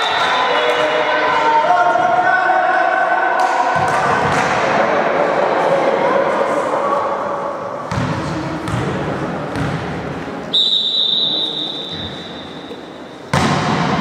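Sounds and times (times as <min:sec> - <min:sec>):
hubbub of the hall: 0:00.0 - 0:14.0
referee's whistle blast: 0:10.5 - 0:12.6.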